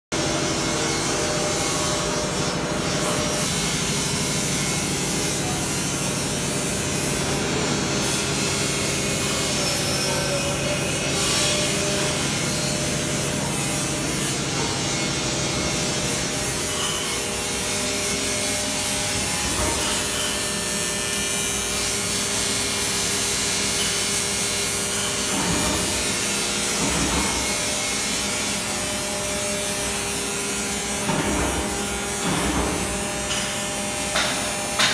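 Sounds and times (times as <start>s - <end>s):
machinery whirring and rubbing: 0.6s - 34.9s.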